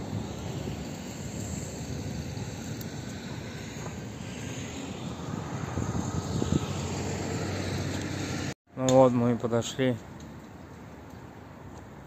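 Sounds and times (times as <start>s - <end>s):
low outdoor background rumble: 0.0s - 8.6s.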